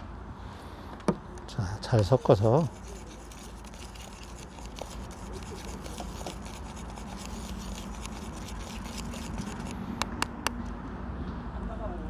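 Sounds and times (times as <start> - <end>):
stick scraping paste in plastic bowl: 1.8 - 9.8.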